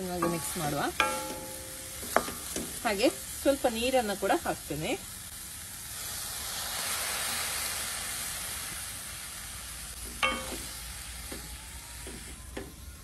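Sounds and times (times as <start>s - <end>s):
water sizzling in hot oil: 0.0s - 13.0s.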